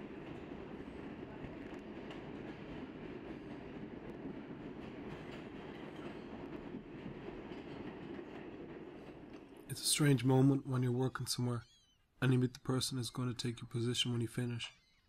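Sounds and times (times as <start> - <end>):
subway train wheels rumbling: 0.0 - 11.3.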